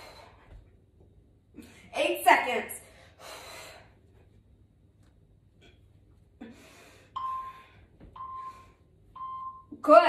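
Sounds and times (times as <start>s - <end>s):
person breathing heavily: 0.0s - 0.6s, 2.8s - 4.0s, 6.4s - 8.0s
interval timer beeps: 7.2s - 7.6s, 8.2s - 8.6s, 9.2s - 9.8s.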